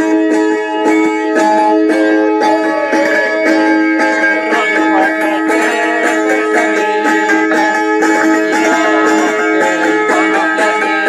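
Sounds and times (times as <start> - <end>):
zither folk dance tune: 0.0 - 11.0.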